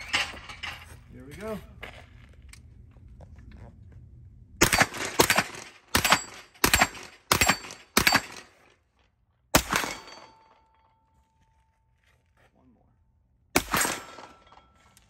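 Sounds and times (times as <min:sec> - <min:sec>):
rifle gunshots with echo: 0:04.6 - 0:08.5, 0:09.6 - 0:10.4, 0:13.6 - 0:14.5
bullet ringing on steel target: 0:06.0 - 0:08.4.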